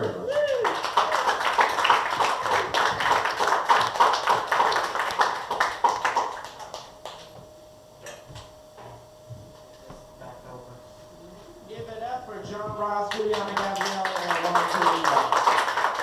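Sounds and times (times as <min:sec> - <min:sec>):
audience clapping: 0:00.0 - 0:07.4, 0:13.1 - 0:16.0.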